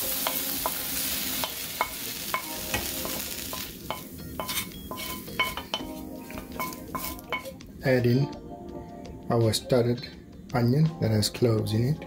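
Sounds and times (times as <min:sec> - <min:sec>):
metal pan ringing: 0:00.0 - 0:07.6
faint sizzle: 0:00.0 - 0:08.2
wooden spoon scraping a pan: 0:02.8 - 0:07.6.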